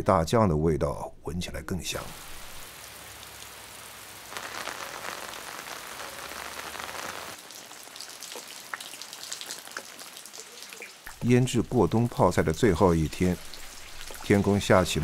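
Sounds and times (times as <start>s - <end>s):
rain on earthenware crocks: 1.9s - 15.0s
drops falling from roof edge: 2.7s - 11.3s.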